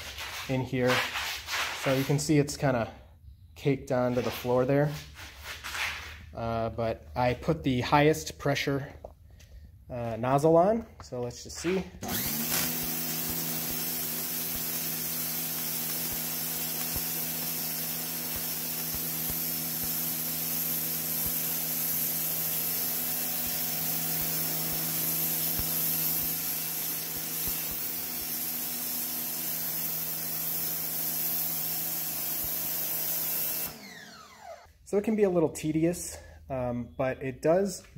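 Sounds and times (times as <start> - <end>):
pressure washer motor hum: 11.6 - 34.7
water jet hissing on concrete: 12.2 - 33.7.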